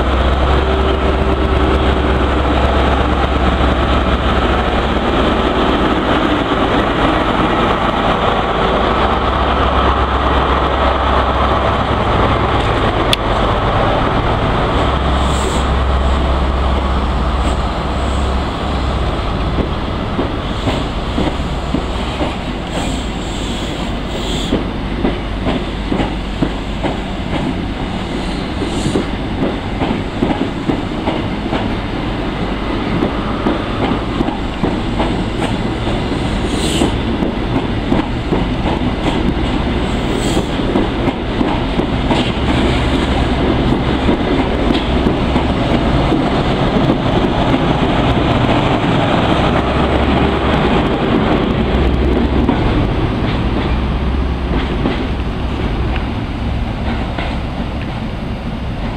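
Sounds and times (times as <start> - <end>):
train rumble: 0.0 - 58.9.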